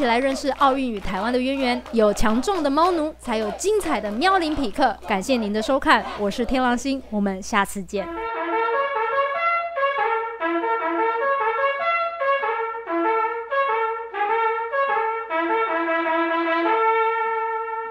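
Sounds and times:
trumpet melody: 0:08.0 - 0:17.9.

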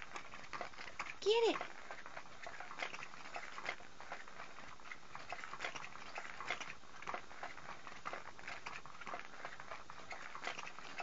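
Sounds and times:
toy irregular clicking: 0:00.0 - 0:11.0.

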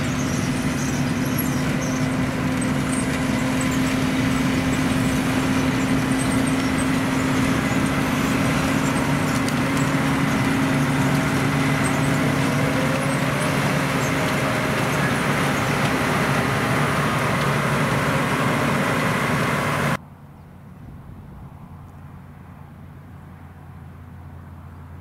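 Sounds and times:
harvester machinery noise: 0:00.0 - 0:20.0
tractor diesel engines humming: 0:00.0 - 0:20.0.

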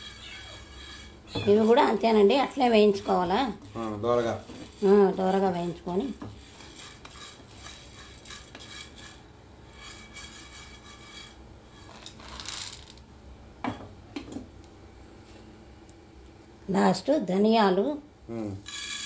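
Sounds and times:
wooden spatula scraping pan: 0:00.0 - 0:12.6.

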